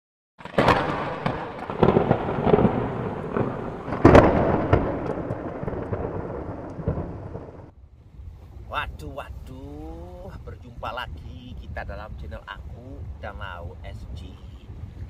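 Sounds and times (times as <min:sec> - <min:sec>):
sharp cracks: 0:00.4 - 0:07.7
thunder-like rumbling: 0:00.4 - 0:07.8.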